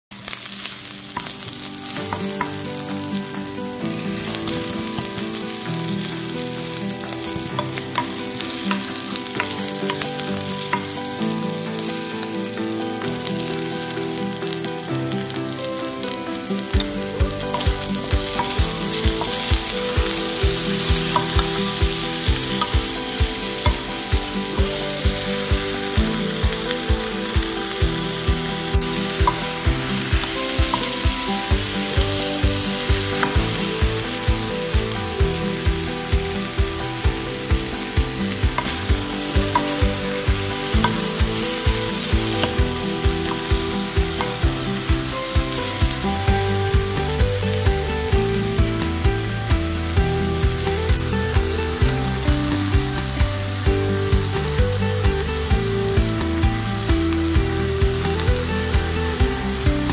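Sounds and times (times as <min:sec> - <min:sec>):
food sizzling in a pan: 0:00.0 - 0:59.9
knocks of stirring food: 0:00.2 - 0:59.9.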